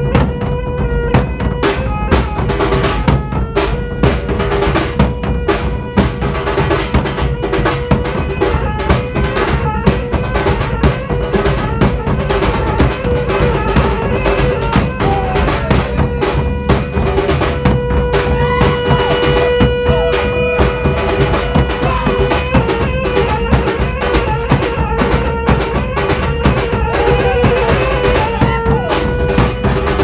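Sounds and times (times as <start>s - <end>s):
fast drumming: 0.0s - 30.0s
wind instrument held note: 9.4s - 24.2s.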